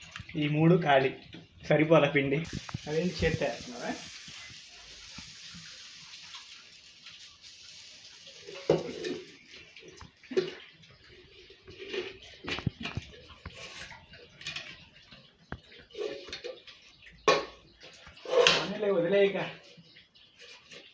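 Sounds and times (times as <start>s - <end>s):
batter sizzling in pan: 2.4s - 9.5s.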